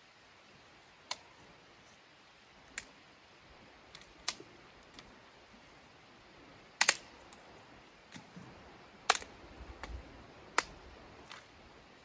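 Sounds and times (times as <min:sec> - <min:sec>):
dry wood snapping: 0:03.9 - 0:04.4, 0:06.8 - 0:07.4, 0:09.1 - 0:11.5.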